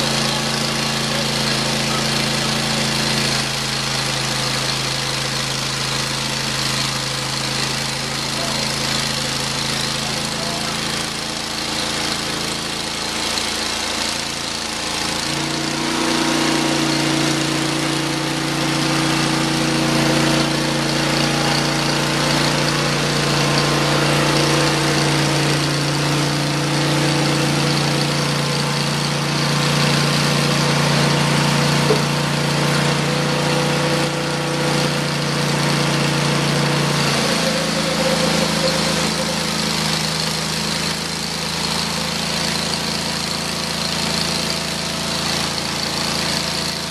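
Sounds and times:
band blade sawing log: 0.0s - 46.9s
sawmill engine running: 0.0s - 46.9s.

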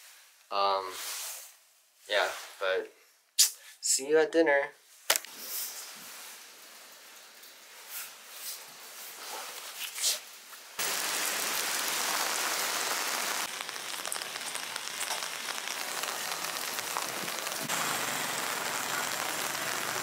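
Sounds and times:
rain hissing on wet street: 10.8s - 20.0s.

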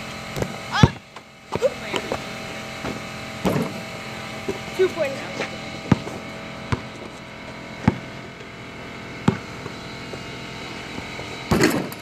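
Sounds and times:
steady mechanical hum: 0.0s - 12.0s.

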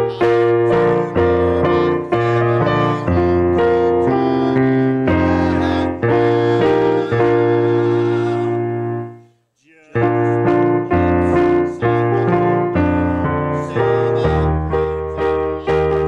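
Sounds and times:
electric keyboard playing chords: 0.0s - 9.2s.

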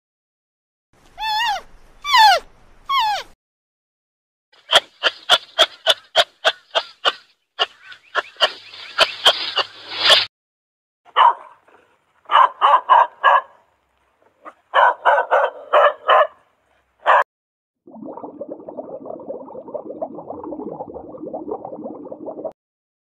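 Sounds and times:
dogs barking: 11.1s - 13.6s, 14.4s - 17.2s.

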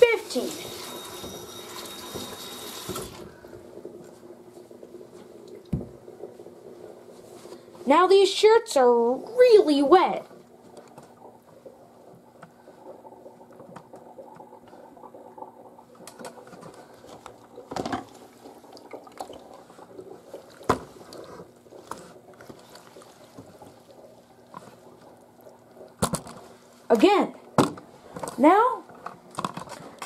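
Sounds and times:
water dripping and splashing: 10.2s - 26.8s.

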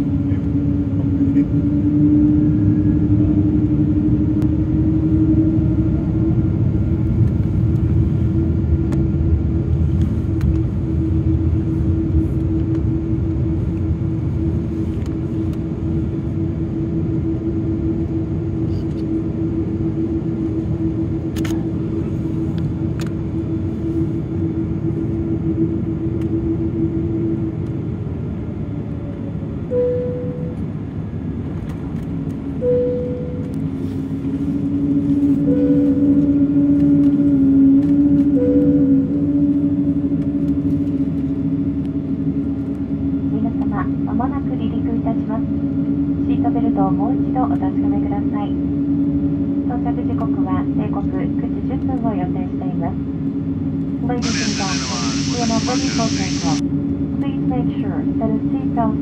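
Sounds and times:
jet engines rumbling: 0.0s - 59.0s
steady hum: 0.0s - 59.0s
short higher hums: 54.2s - 56.6s.

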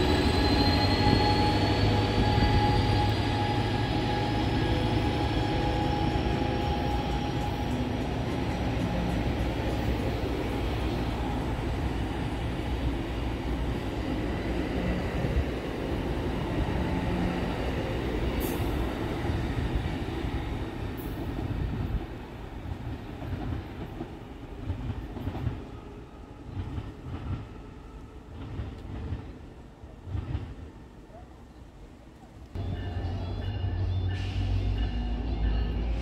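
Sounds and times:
train cars rumbling past: 0.0s - 31.0s, 32.6s - 36.0s.

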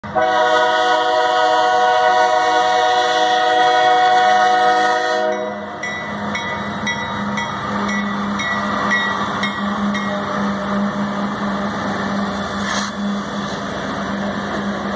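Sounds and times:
locomotive engine and wheel noise: 0.0s - 14.9s
locomotive air horn: 0.1s - 5.8s
crossing bell ringing: 5.2s - 12.5s.

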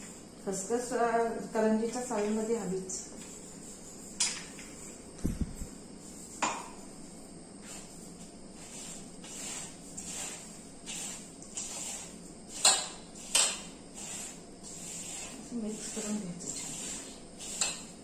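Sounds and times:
grated coconut rustling: 7.6s - 18.0s.

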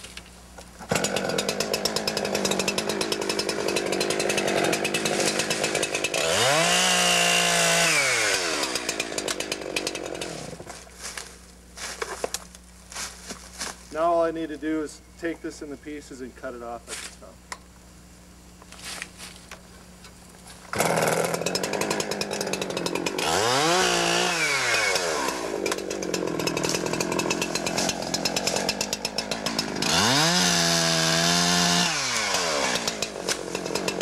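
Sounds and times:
chainsaw idling and cutting wood: 0.0s - 11.3s, 20.7s - 34.0s.

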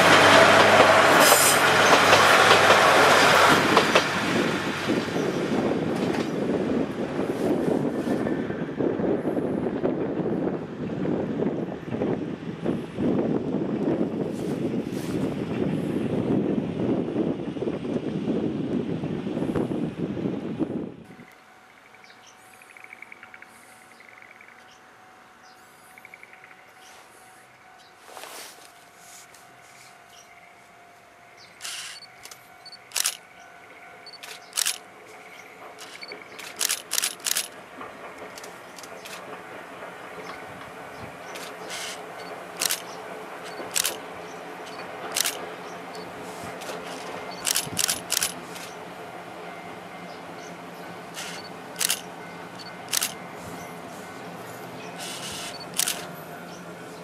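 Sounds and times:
diesel railcar humming: 0.0s - 57.0s
wind buffeting microphone: 3.4s - 21.2s
camera shutters clicking: 31.6s - 33.2s, 34.2s - 34.8s, 35.8s - 37.6s, 42.6s - 42.9s, 43.5s - 44.0s, 44.7s - 45.4s, 46.6s - 48.8s, 51.2s - 52.0s, 52.6s - 53.2s, 55.0s - 56.1s.

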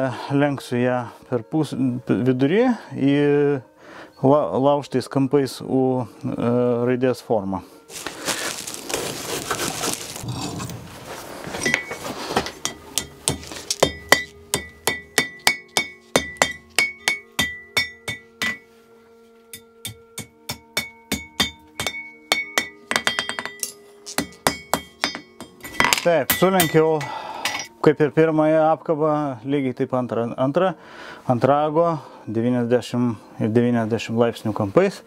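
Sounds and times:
hammer striking hot iron on anvil: 11.6s - 18.6s, 19.5s - 27.7s
anvil ringing: 12.6s - 18.6s, 19.5s - 27.7s.

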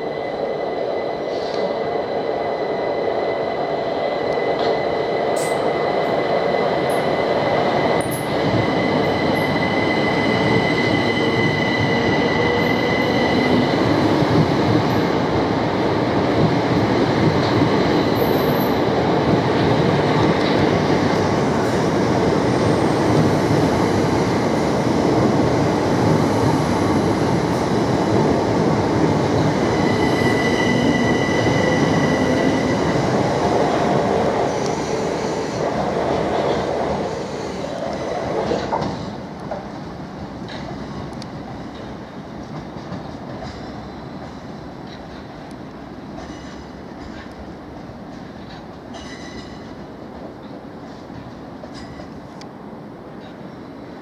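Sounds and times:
train wheels rumbling on rail: 0.0s - 54.0s
high whining squeal: 29.6s - 33.0s.

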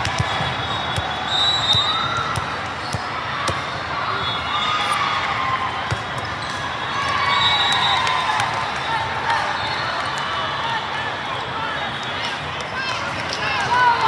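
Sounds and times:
volleyballs struck and bouncing: 0.0s - 3.8s, 5.8s - 6.6s
crowd chatter: 0.0s - 14.0s.

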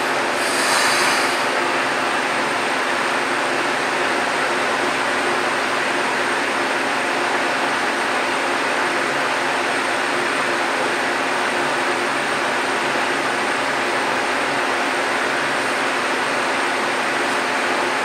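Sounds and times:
steady hiss: 0.1s - 1.9s.

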